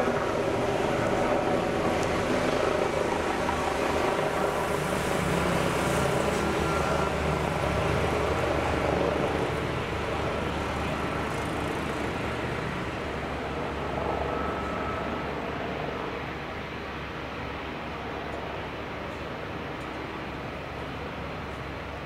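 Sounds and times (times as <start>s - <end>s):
helicopter turbine and rotor: 0.0s - 22.0s.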